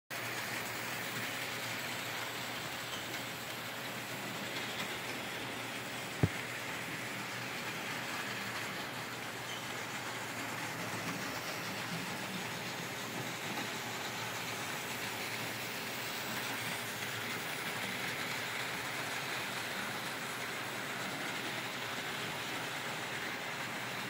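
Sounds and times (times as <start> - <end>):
model train motors whirring: 0.2 - 24.0.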